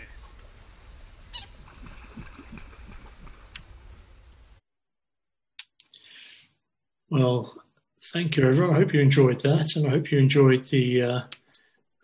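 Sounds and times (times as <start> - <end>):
bird calls: 1.3 - 3.3
faint clicks: 2.9 - 3.7.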